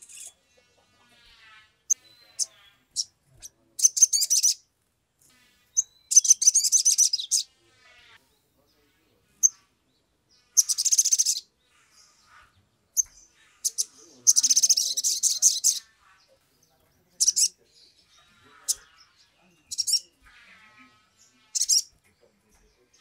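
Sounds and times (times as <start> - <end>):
sharp bird chips: 0.0 - 0.4, 1.4 - 4.6, 5.7 - 7.5, 10.5 - 11.5, 13.0 - 15.9, 17.2 - 20.2, 21.5 - 22.0
sunbird twittering trills: 1.3 - 4.6, 5.6 - 23.0.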